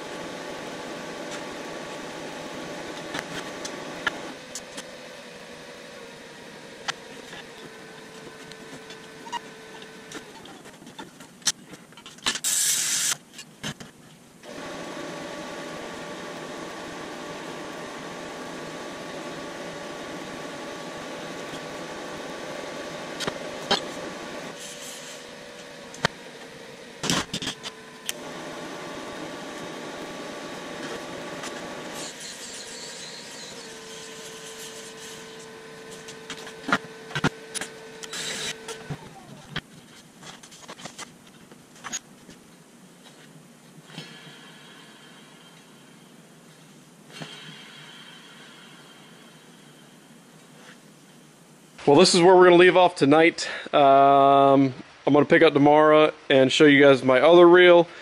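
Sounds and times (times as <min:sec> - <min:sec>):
welding arc buzzing: 0:00.0 - 0:11.6, 0:12.2 - 0:13.8, 0:14.4 - 0:42.4
loud hiss: 0:12.4 - 0:13.2.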